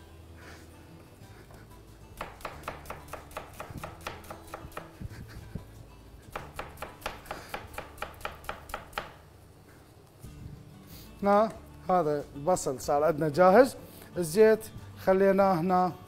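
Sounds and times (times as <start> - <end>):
knife chopping on cutting board: 2.2 - 5.0, 6.3 - 9.2.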